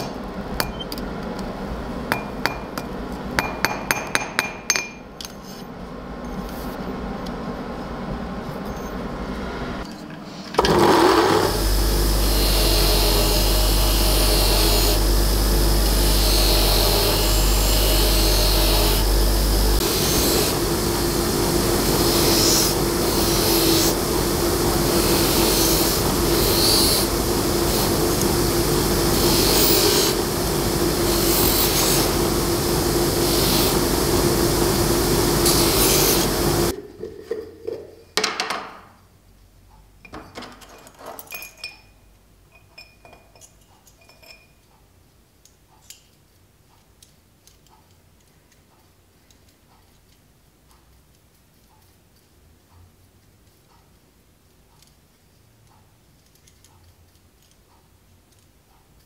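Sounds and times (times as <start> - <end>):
bench grinder wire wheel running: 10.6 - 36.8
metal against wire brush hissing: 11.4 - 36.7
metal tins and tools clinking: 40.1 - 44.6.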